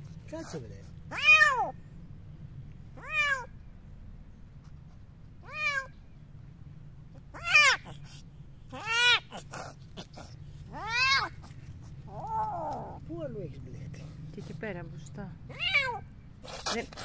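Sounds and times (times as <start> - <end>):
kitten meowing in distress: 1.1 - 1.8, 3.0 - 3.5, 5.4 - 5.9, 7.3 - 7.9, 8.7 - 9.4, 10.7 - 11.4, 15.5 - 16.1.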